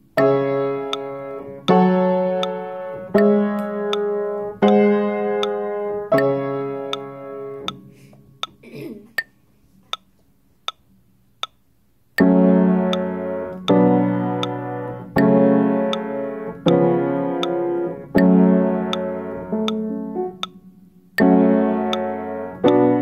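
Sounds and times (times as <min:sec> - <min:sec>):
upright piano minor chords: 0:00.0 - 0:08.9, 0:12.2 - 0:23.0
faint steady click: 0:02.4 - 0:02.6, 0:05.4 - 0:08.6, 0:09.2 - 0:11.6, 0:12.9 - 0:13.8, 0:14.4 - 0:14.6, 0:15.9 - 0:17.6, 0:18.2 - 0:20.6, 0:21.2 - 0:22.8.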